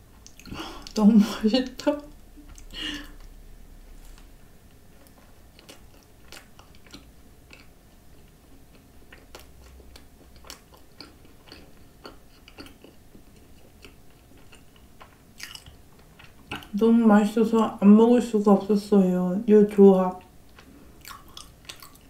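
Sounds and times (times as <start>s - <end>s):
chewing with soft crunches: 2.0s - 16.8s, 20.2s - 22.0s.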